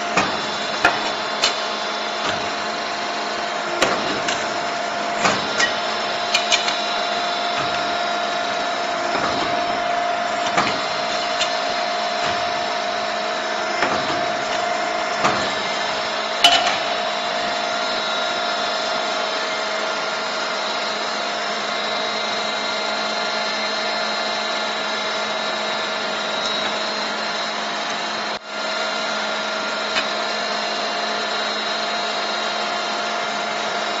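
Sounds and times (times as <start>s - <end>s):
machine motor hum and whine: 0.0s - 34.0s
sharp metallic knocks: 16.4s - 17.4s.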